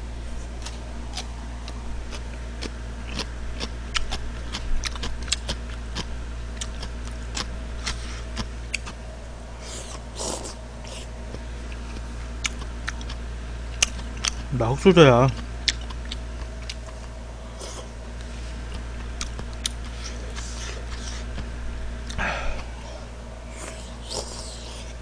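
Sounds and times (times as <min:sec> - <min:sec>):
low steady hum: 0:00.0 - 0:25.0
wet chewing and lip-smacking: 0:00.6 - 0:09.0, 0:09.7 - 0:14.5, 0:15.3 - 0:17.9, 0:18.7 - 0:22.8.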